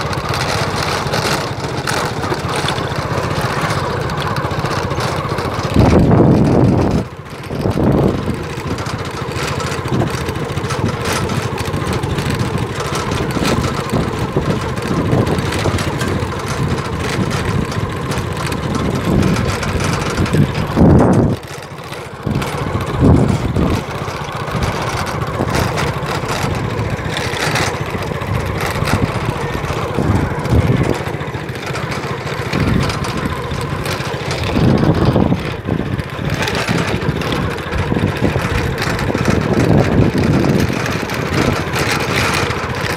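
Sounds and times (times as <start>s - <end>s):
small vehicle engine running: 0.0s - 42.9s.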